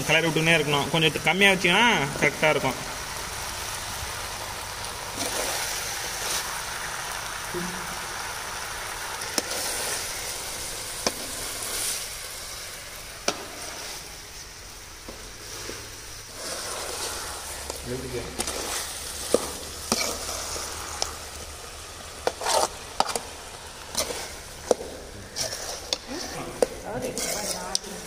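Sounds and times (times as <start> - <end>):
chicken sizzling in oil: 0.0 - 28.0
spatula stirring in pan: 0.0 - 28.0.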